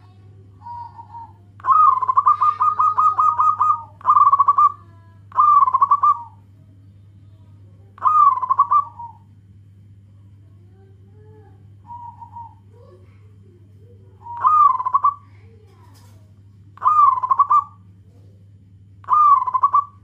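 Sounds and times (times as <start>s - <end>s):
dove cooing: 0.0s - 6.5s, 8.0s - 9.3s, 11.2s - 16.1s, 16.8s - 18.3s, 19.0s - 20.0s
steady low hum: 0.0s - 20.0s.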